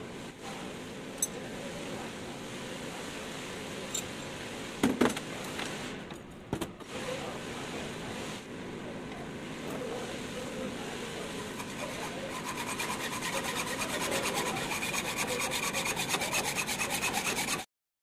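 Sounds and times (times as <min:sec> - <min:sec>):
hacksaw cutting metal: 0:11.5 - 0:17.7.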